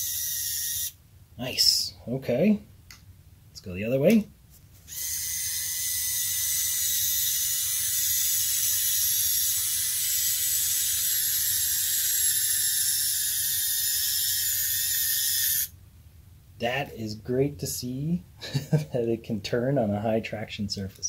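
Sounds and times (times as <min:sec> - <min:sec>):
small electric motor whining: 0:00.0 - 0:01.0, 0:04.9 - 0:15.7.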